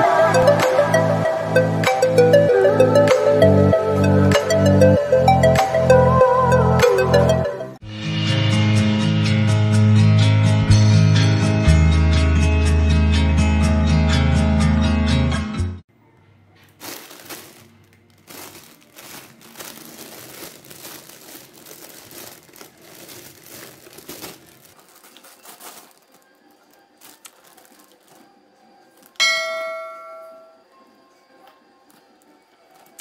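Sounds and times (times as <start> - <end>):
plastic bag crinkling: 16.6 - 29.2
bell-like ding: 29.2 - 30.6.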